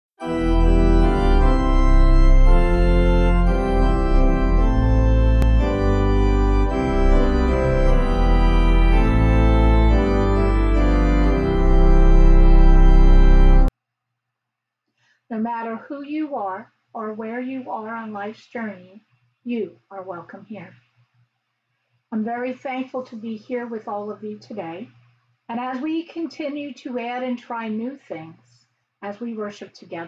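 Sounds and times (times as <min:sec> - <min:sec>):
organ chords over deep bass: 0:00.2 - 0:13.7.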